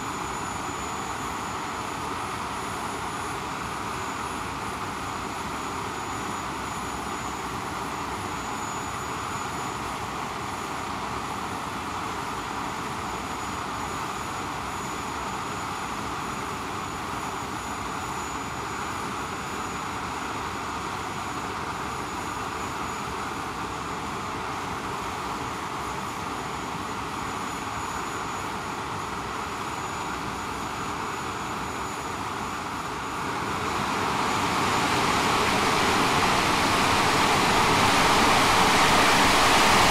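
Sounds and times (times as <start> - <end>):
jet engines roaring: 30.1 - 39.9.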